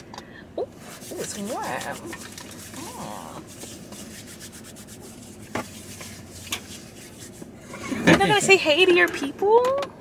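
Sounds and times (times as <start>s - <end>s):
hands rubbing together: 0.8s - 7.6s.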